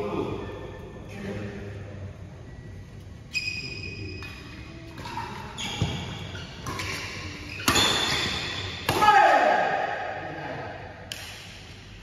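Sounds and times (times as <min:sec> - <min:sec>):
badminton racket hitting shuttlecock: 0:06.6 - 0:09.1.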